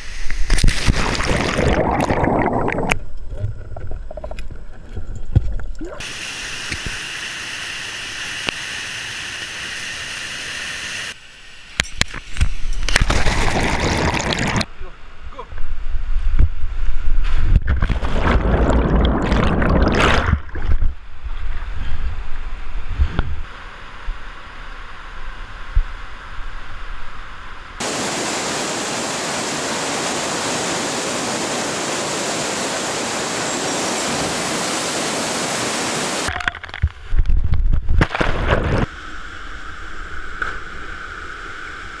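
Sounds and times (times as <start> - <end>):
loud water splashing: 0.5 - 3.0, 12.9 - 14.7, 17.8 - 20.8
waterfall rushing: 27.8 - 36.3.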